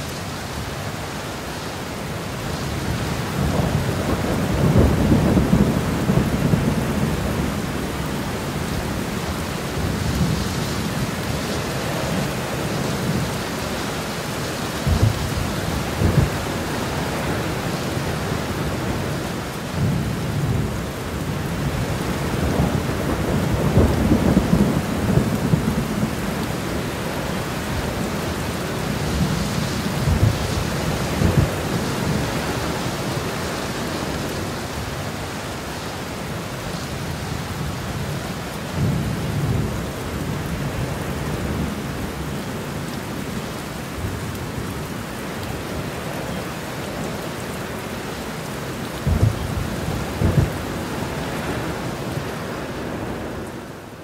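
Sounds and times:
steady rain: 0:00.0 - 0:54.0
rolling thunder: 0:02.9 - 0:11.3, 0:14.8 - 0:19.2, 0:19.8 - 0:32.7, 0:48.8 - 0:53.3.

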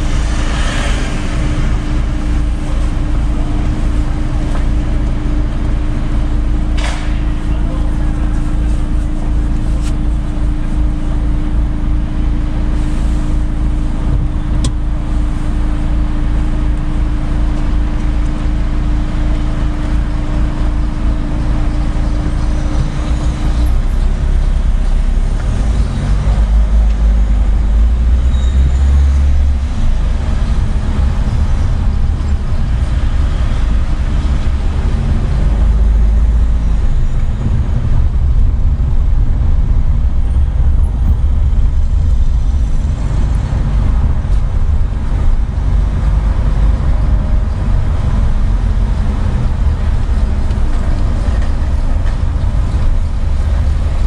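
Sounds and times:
car engine and road noise: 0:00.0 - 0:54.0.

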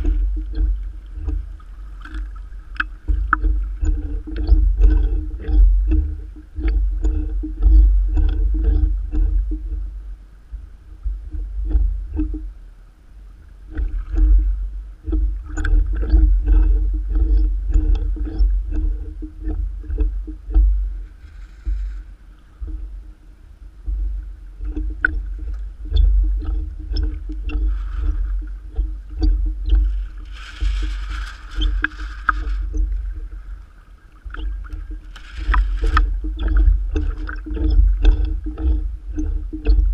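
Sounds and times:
water slapping against boat hull: 0:00.0 - 0:12.5, 0:13.6 - 0:23.1, 0:23.8 - 0:39.9
wind buffeting microphone: 0:23.8 - 0:39.9.

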